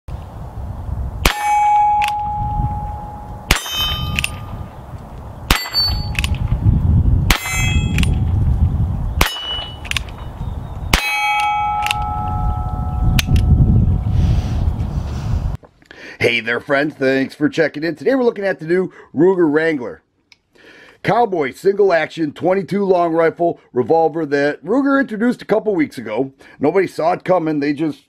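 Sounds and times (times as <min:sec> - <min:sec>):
metallic ring of steel target: 0:01.2 - 0:04.7, 0:05.5 - 0:06.6, 0:07.3 - 0:08.4, 0:09.2 - 0:10.3, 0:10.9 - 0:14.0.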